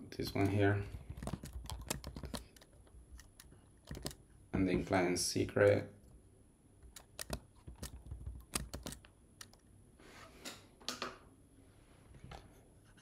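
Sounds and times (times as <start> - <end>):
keyboard and mouse clicks: 0.4 - 4.2, 6.8 - 9.6.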